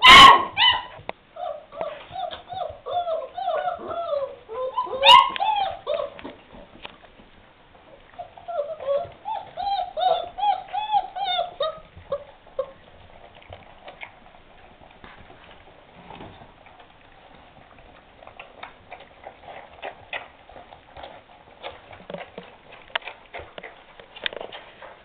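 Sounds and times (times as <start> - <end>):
puppy whining: 0.0 - 6.6, 7.9 - 12.9
puppies eating with smacking sounds: 0.0 - 25.0.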